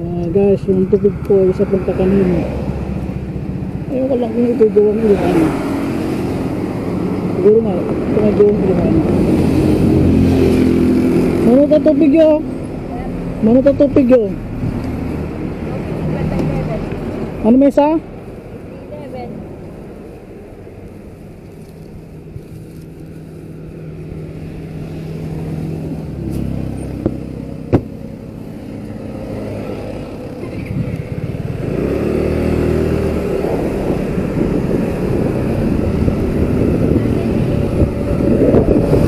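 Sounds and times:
motorcycle engine accelerating: 0.0 - 13.7, 24.0 - 39.0
wind noise: 28.5 - 39.0.

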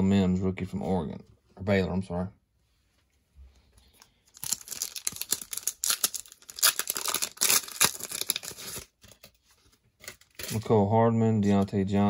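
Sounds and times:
plastic wrapper crinkling: 3.9 - 9.3.

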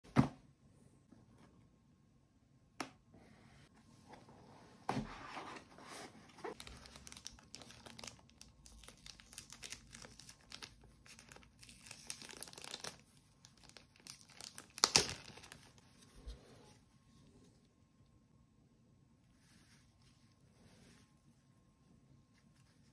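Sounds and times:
plastic bag crinkling and tearing: 6.5 - 15.8.

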